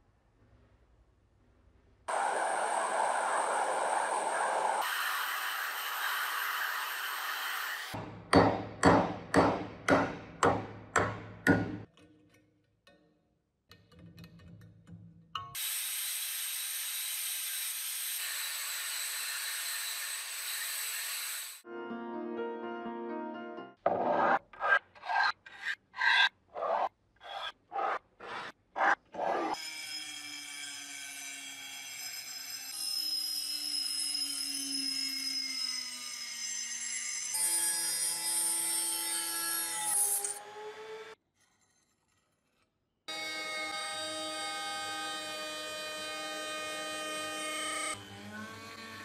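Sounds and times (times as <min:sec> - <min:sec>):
metal scraping across tabletop: 0:23.9 - 0:29.4.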